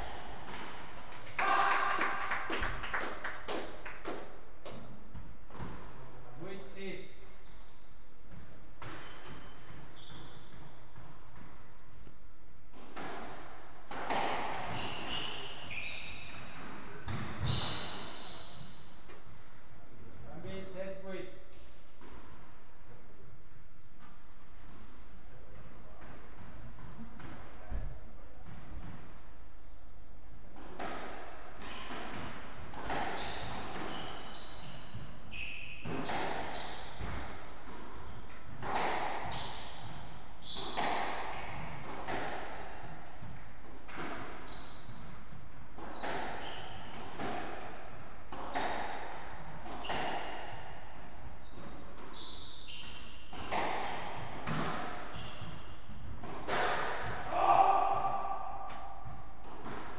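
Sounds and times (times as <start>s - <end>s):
squash ball hitting rackets and walls: 0.0s - 59.9s
shoes squeaking on wooden floor: 0.4s - 1.4s, 8.8s - 11.1s, 14.6s - 19.2s, 31.6s - 37.2s, 39.3s - 41.9s, 43.9s - 45.3s, 45.9s - 46.9s, 51.3s - 54.2s, 55.0s - 56.1s.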